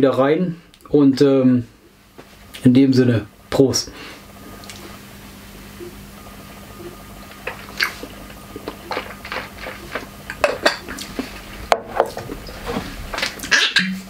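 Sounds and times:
glass bottles clinking: 0:10.4 - 0:10.9.

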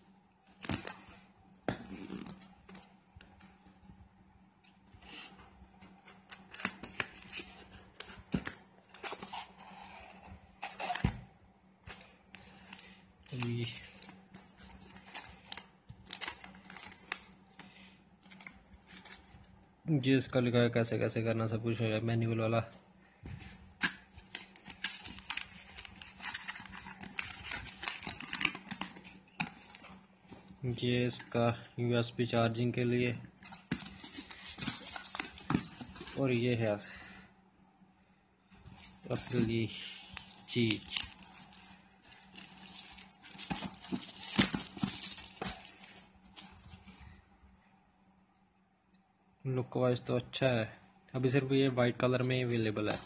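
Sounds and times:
cardboard packaging crinkling and scraping: 0:11.9 - 0:17.3, 0:24.2 - 0:30.6, 0:33.4 - 0:36.8, 0:38.6 - 0:47.2
paper rustling: 0:23.8 - 0:30.6, 0:33.4 - 0:36.6, 0:38.6 - 0:47.2.

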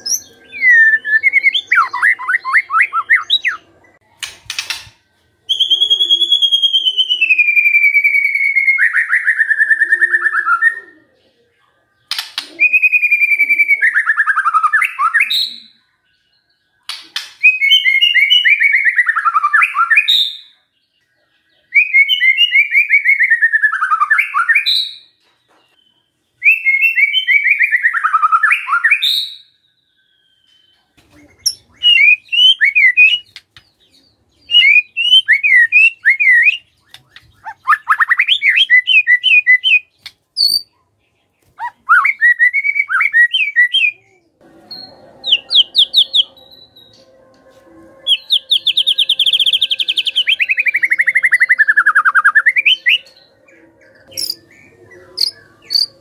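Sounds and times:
bird singing falling trill: 0:12.0 - 0:56.0
bird chirping quick notes: 0:44.4 - 0:56.0.

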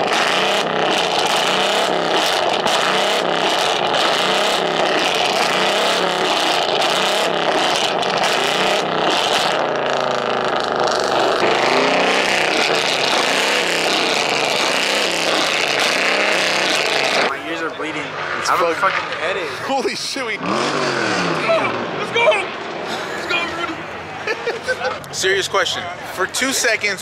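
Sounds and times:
car exhaust revving hard: 0:00.0 - 0:17.3, 0:18.0 - 0:24.0
exhaust pops and crackles: 0:00.0 - 0:17.3, 0:18.0 - 0:20.8.

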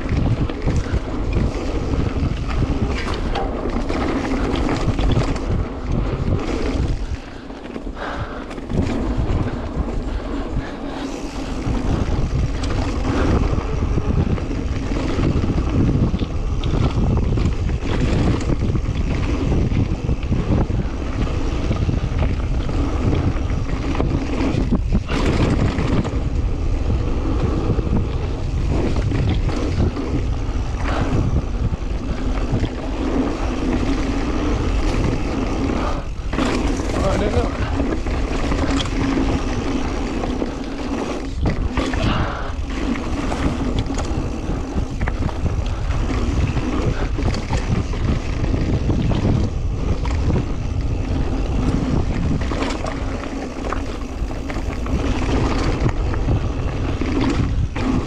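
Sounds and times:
bike knocks and rattles: 0:00.0 - 0:58.0
wind rumbling on microphone: 0:00.0 - 0:58.0.

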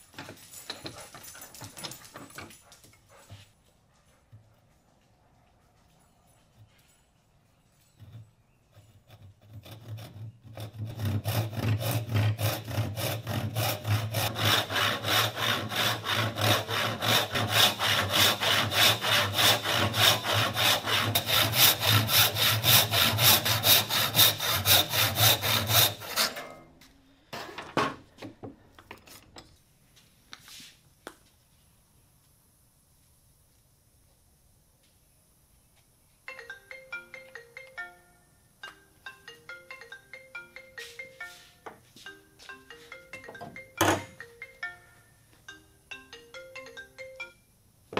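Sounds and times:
hand saw cutting wood: 0:08.7 - 0:26.6.

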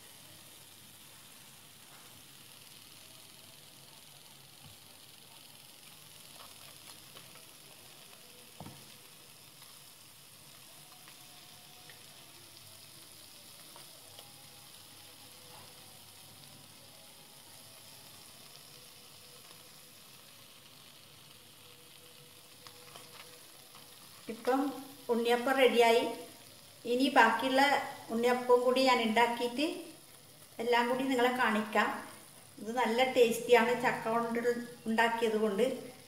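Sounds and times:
hot oil sizzling: 0:00.0 - 0:36.0.

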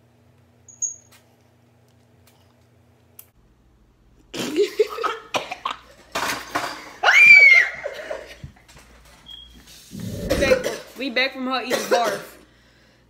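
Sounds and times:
woman gagging and retching: 0:09.9 - 0:10.9.

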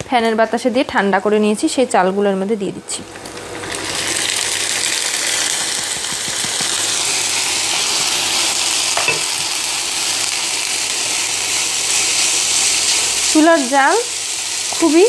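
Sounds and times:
rice sizzling in hot oil: 0:02.9 - 0:15.0
spatula stirring in a pan: 0:11.0 - 0:15.0.

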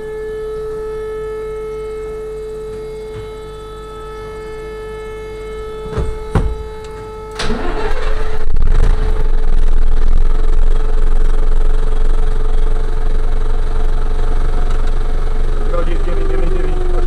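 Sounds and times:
steady siren tone: 0:00.0 - 0:17.0
vehicle engine starting and running: 0:00.0 - 0:17.0
sharp knocks: 0:05.8 - 0:07.0.

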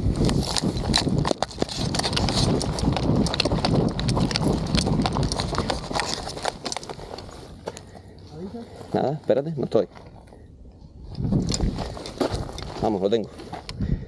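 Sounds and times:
running footsteps on stony ground: 0:00.0 - 0:10.4, 0:11.1 - 0:14.0
wind rumbling on microphone: 0:00.0 - 0:14.0
gear and rifle rattling: 0:00.2 - 0:08.2, 0:11.2 - 0:13.8.

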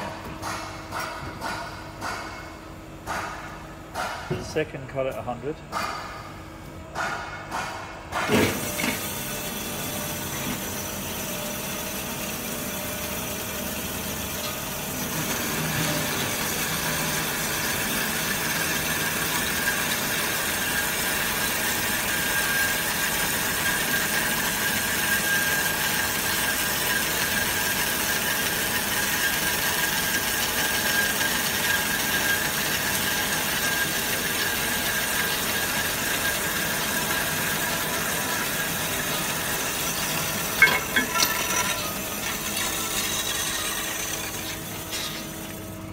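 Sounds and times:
band saw cutting steel: 0:31.0 - 0:45.8.

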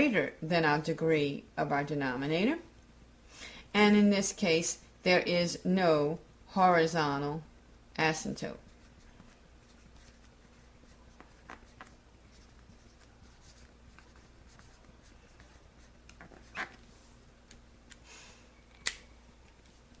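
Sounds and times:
marker squeaking on whiteboard: 0:08.8 - 0:16.8.

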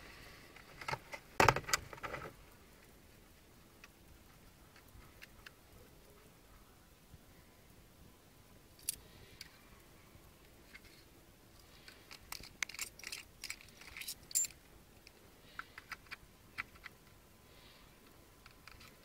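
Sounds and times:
small plastic and metal clicks: 0:11.6 - 0:17.2, 0:18.0 - 0:19.0.

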